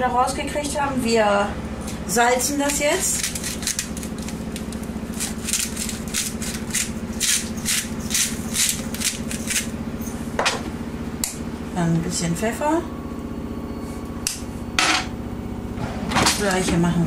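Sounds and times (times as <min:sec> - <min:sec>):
salt mill grinding: 0:02.6 - 0:09.8.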